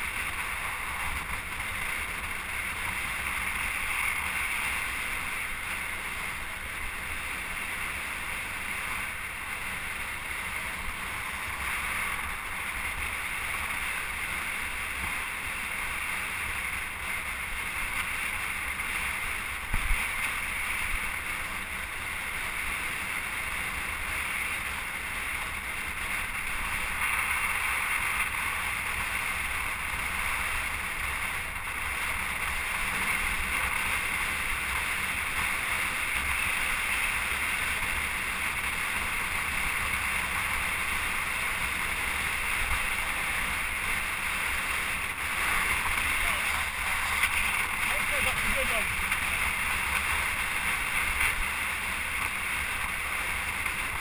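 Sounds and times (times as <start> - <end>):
wind noise on microphone: 16.4 - 22.7.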